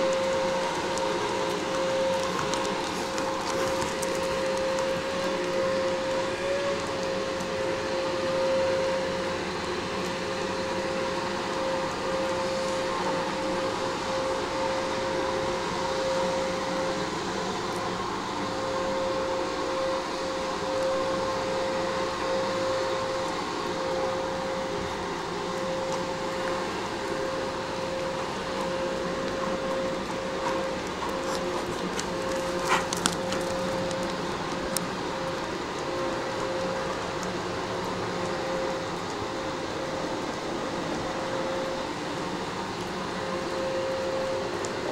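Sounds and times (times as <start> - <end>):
small machine humming with whine: 0.0 - 44.9.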